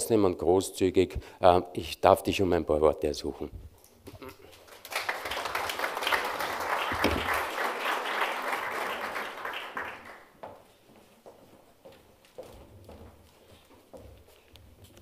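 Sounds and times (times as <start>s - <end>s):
audience applauding: 4.5s - 10.4s.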